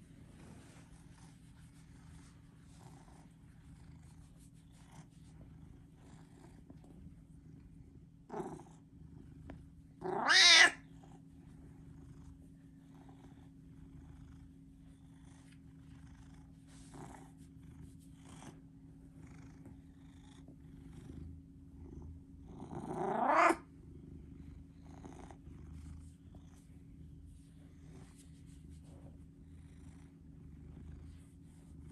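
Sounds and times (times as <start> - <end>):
cat purring: 0.0 - 31.9
cat loud rising calls: 10.0 - 10.8.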